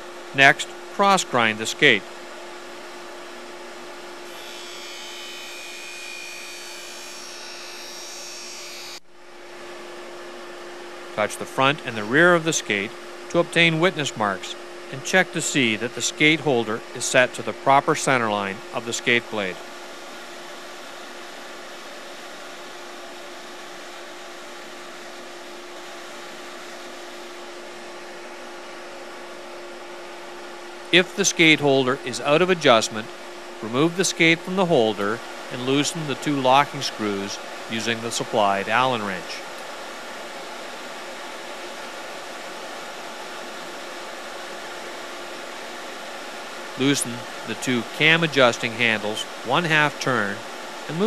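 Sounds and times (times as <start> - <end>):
motor hum: 3.2 - 9.0
sharpening machine whirring: 4.2 - 9.0.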